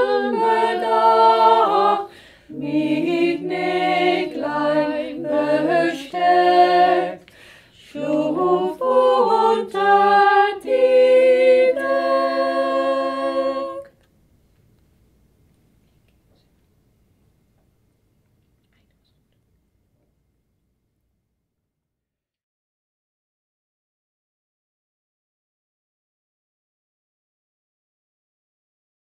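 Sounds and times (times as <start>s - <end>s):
voices singing in harmony: 0.0s - 14.0s.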